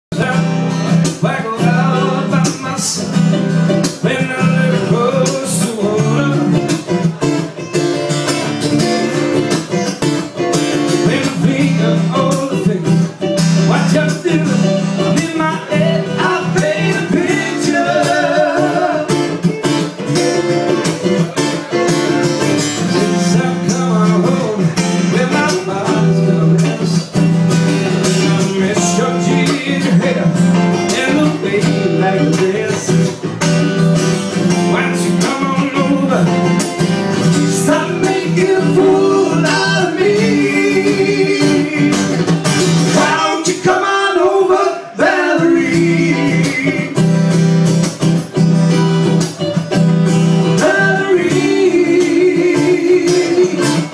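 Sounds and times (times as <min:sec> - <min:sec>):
man singing: 0:00.1 - 0:07.6, 0:10.7 - 0:20.5, 0:21.1 - 0:27.3, 0:28.0 - 0:33.5, 0:34.4 - 0:47.4, 0:50.4 - 0:53.9
acoustic guitars strumming: 0:00.1 - 0:53.9.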